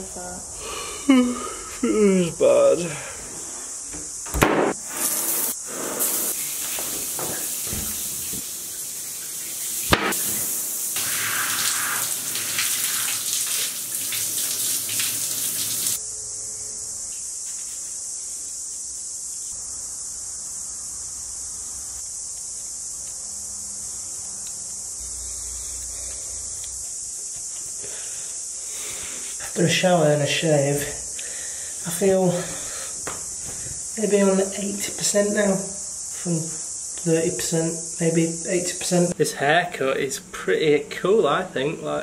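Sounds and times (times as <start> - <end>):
steady high hiss: 0.0 - 42.0
sharp knock: 4.3 - 4.8, 9.9 - 10.4
running water: 4.9 - 16.0.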